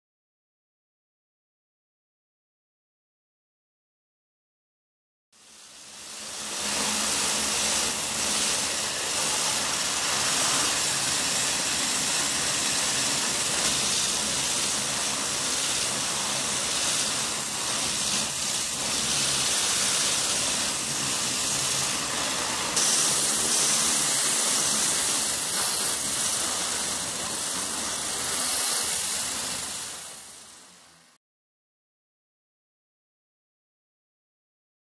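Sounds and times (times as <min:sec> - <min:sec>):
water jet hissing on metal: 0:05.4 - 0:31.2.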